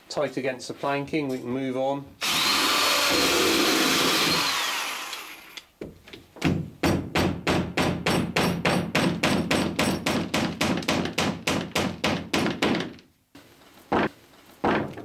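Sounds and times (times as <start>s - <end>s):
hammer driving nail into wood: 6.4s - 13.1s.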